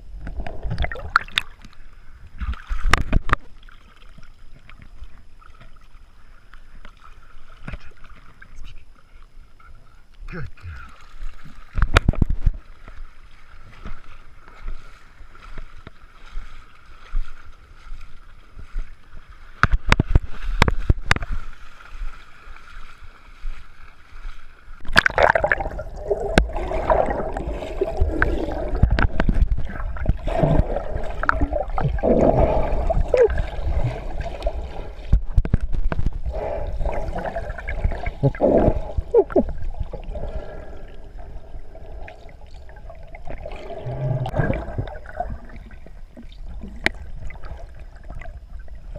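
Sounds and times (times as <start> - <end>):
muffled underwater bubbling: 0.0 - 3.6, 24.8 - 48.9
water lapping and sloshing: 0.2 - 48.9.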